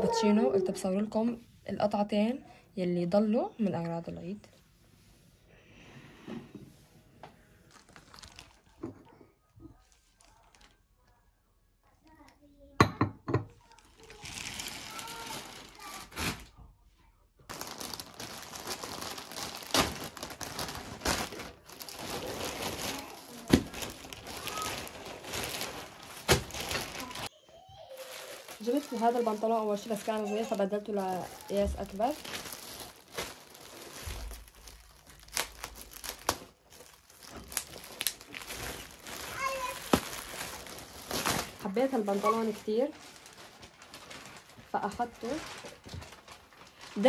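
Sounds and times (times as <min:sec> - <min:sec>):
plastic bag crinkling: 0:07.6 - 0:09.1, 0:09.7 - 0:10.9, 0:13.6 - 0:16.5, 0:17.5 - 0:47.0.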